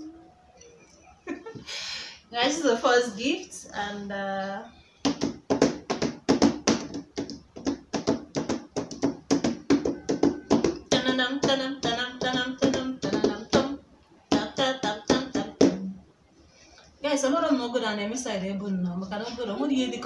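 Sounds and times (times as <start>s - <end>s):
hand slapping on a box: 5.0s - 13.7s
woman singing: 10.6s - 16.0s.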